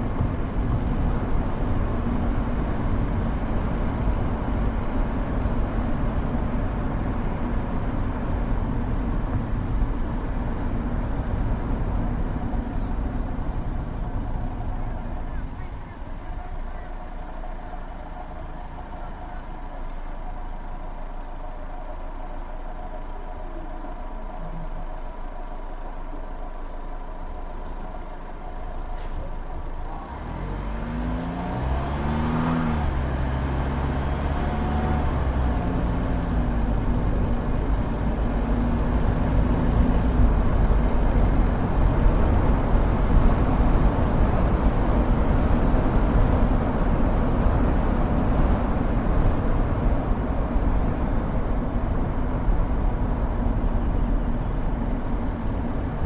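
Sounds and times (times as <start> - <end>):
road and tyre noise: 0.0 - 56.0
vehicle engine pulling away: 16.2 - 56.0.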